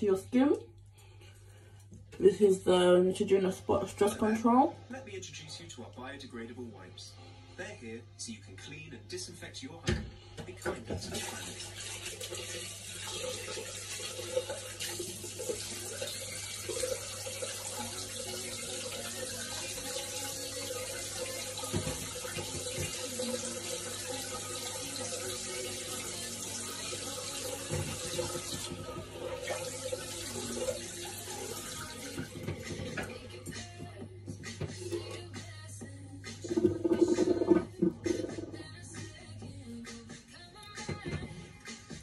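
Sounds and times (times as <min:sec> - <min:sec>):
tap running into sink: 0:21.2 - 0:25.5, 0:27.3 - 0:33.6, 0:36.4 - 0:38.6.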